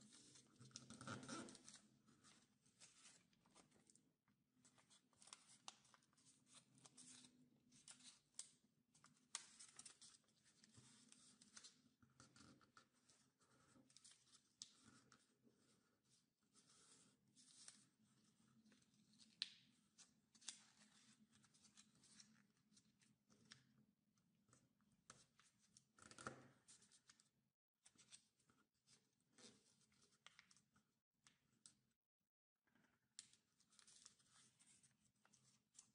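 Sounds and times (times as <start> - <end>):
paper crinkling while folded: 4.7 - 12.4, 33.6 - 35.9.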